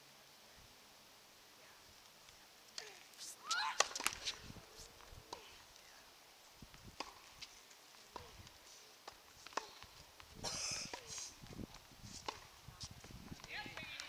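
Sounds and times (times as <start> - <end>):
tennis balls hit and bouncing: 2.8 - 4.4, 5.3 - 5.6, 6.9 - 14.0.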